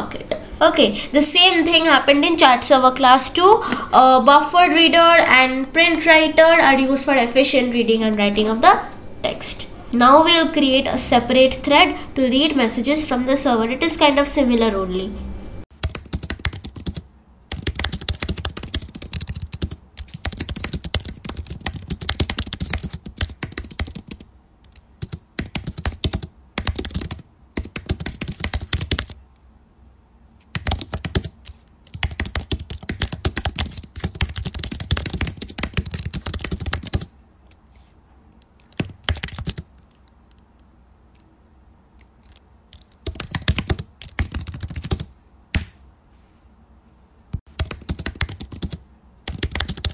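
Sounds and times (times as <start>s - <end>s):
typing on a keyboard: 15.8s - 29.2s, 30.5s - 37.6s, 38.3s - 40.4s, 42.0s - 45.7s, 47.5s - 49.9s.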